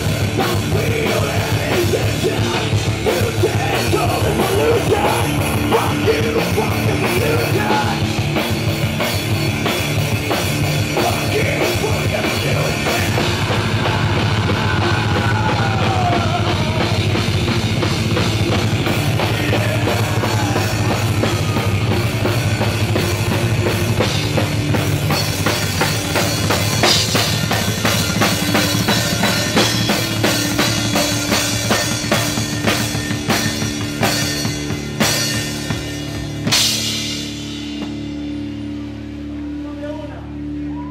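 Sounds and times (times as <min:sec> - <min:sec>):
drum kit and cymbals: 0:00.0 - 0:39.4
live rock band playing: 0:00.0 - 0:40.9.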